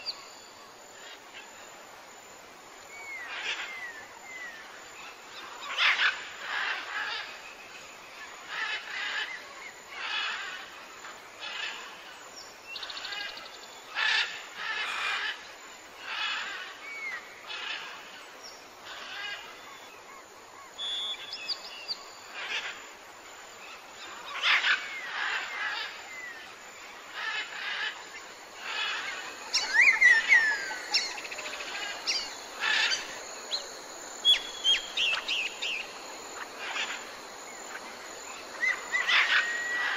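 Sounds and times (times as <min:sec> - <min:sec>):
bird chirping: 0:20.8 - 0:22.1, 0:28.6 - 0:39.9.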